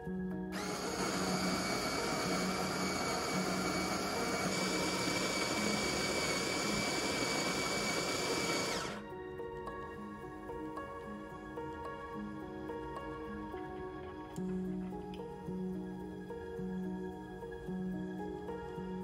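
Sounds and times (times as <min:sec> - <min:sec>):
coffee grinder grinding beans: 0:00.6 - 0:09.0.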